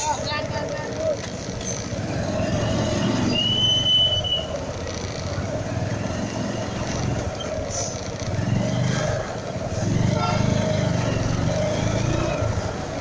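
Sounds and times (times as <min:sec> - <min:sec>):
motorcycle engine crawling: 0:00.0 - 0:13.0
street traffic noise: 0:00.0 - 0:13.0
high squeal: 0:02.3 - 0:04.6.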